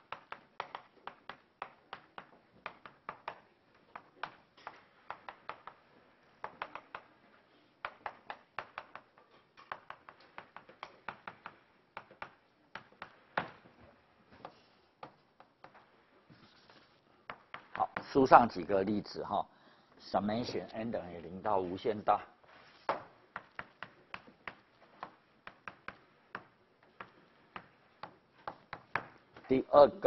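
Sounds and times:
chalk tapping on chalkboard: 0:00.0 - 0:05.8, 0:06.4 - 0:07.1, 0:07.8 - 0:13.7, 0:14.3 - 0:18.2, 0:22.5 - 0:29.2.

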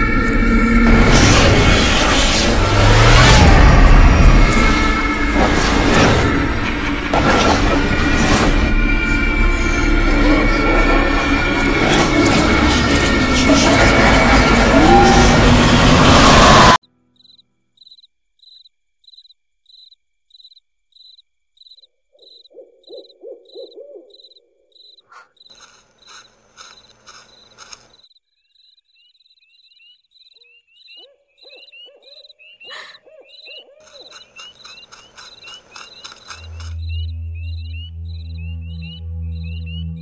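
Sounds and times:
crickets chirping: 0:16.9 - 0:40.0
owl hooting: 0:22.1 - 0:26.2, 0:29.7 - 0:40.0.

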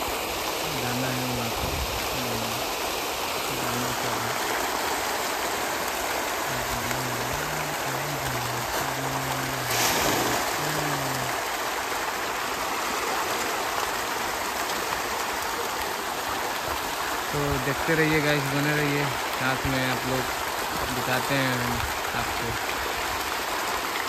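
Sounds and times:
fish splashing at water surface: 0:02.1 - 0:11.6.

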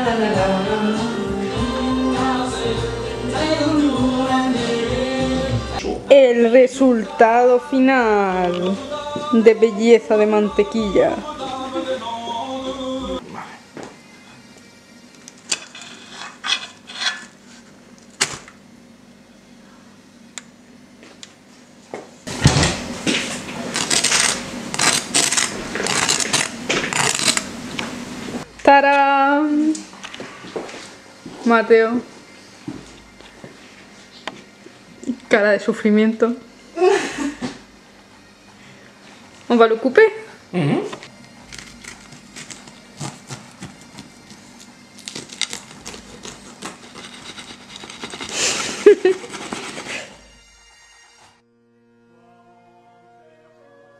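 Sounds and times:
knife sawing through crunchy crust: 0:23.6 - 0:27.4, 0:41.5 - 0:50.2.

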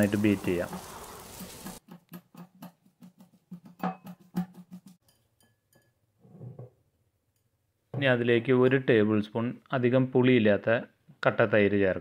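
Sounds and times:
whisk tapping glass bowl: 0:01.8 - 0:06.0.

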